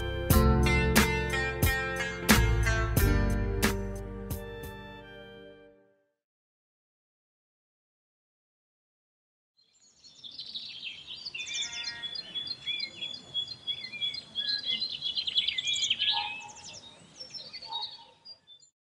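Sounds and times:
faint outdoor background: 0:00.0 - 0:06.2, 0:09.6 - 0:18.7
songbirds chirping and singing: 0:09.6 - 0:18.7.

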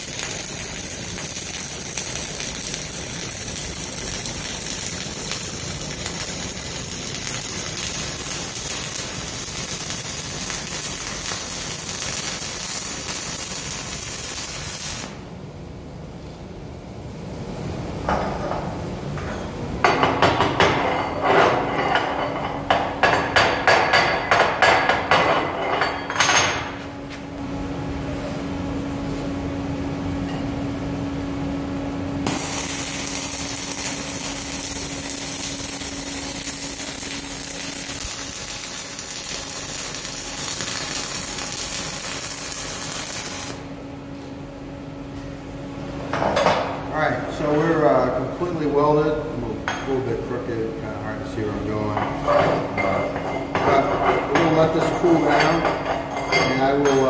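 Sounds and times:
welding arc hissing: 0:00.0 - 0:15.3, 0:32.2 - 0:43.7
machine hum: 0:00.0 - 0:20.0, 0:24.3 - 0:51.9.

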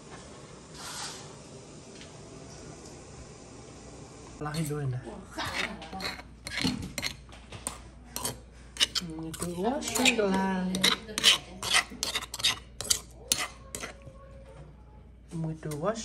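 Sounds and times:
metal spoon scraping stone mortar: 0:04.5 - 0:04.8, 0:05.4 - 0:14.0.

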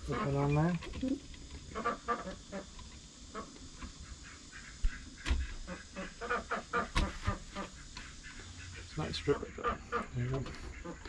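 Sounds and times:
chickens clucking and squawking: 0:00.0 - 0:11.0.

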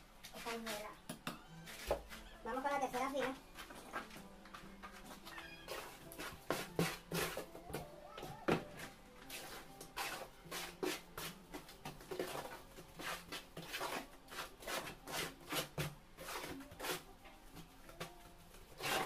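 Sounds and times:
wet mortar scraping and slapping: 0:05.7 - 0:07.5, 0:09.2 - 0:17.1, 0:18.7 - 0:19.0.

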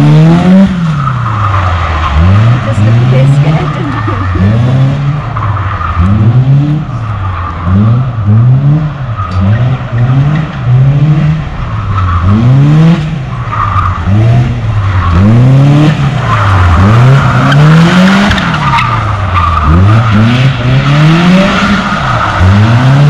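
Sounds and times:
car engine revving: 0:00.0 - 0:23.0.

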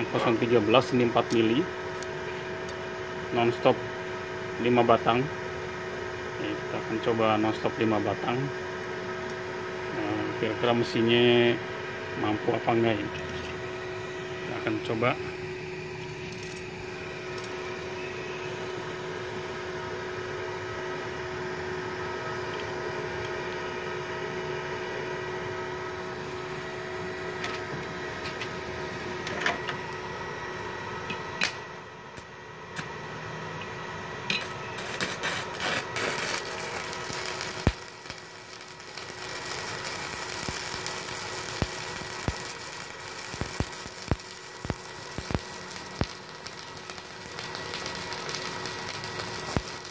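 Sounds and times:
machine hum: 0:00.0 - 0:49.9
arc welding crackling hiss: 0:34.3 - 0:49.9.

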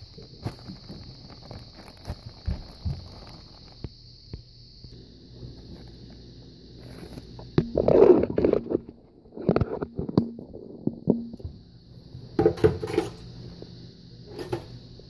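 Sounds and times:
plastic bag crinkling: 0:00.0 - 0:03.8.

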